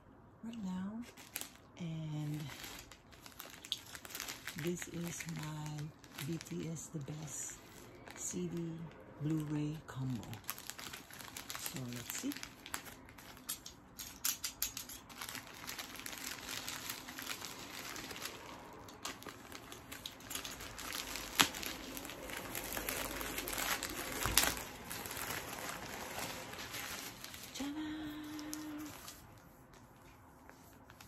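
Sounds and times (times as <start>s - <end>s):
plastic mailer crinkling: 0.8s - 30.0s
sharp crackles: 15.1s - 29.1s.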